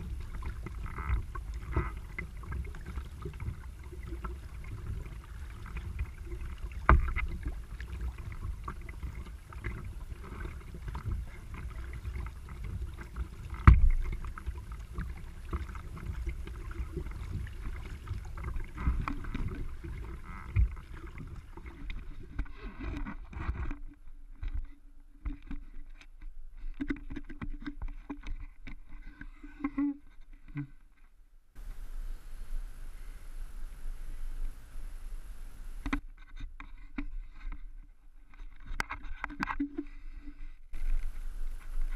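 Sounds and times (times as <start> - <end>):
rushing water: 0.0 - 23.8, 31.6 - 36.0, 40.7 - 41.9
paddle splashing in water: 0.0 - 25.8, 31.6 - 37.6, 38.3 - 41.9
faint steady hum: 28.9 - 36.2, 39.8 - 41.9.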